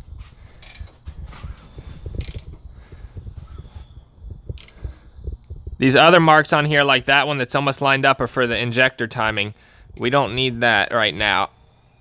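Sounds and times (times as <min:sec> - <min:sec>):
handling knocks and rustles: 0:00.0 - 0:05.8.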